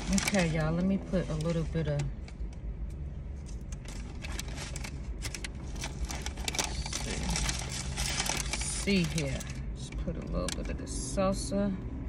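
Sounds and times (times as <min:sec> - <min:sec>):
foil wrapper crinkling: 0:00.0 - 0:02.0, 0:03.4 - 0:09.9
steady low hum: 0:00.0 - 0:12.0.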